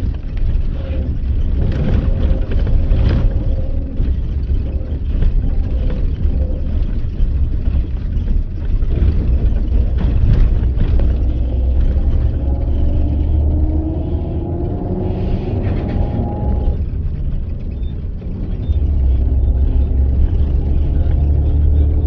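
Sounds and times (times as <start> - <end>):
knocks and rattles: 0.0 - 14.7
bus engine rumble: 0.0 - 22.0.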